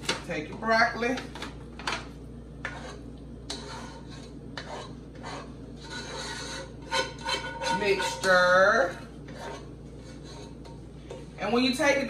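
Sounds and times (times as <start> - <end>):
spoon scraping food from pot: 2.6 - 11.3.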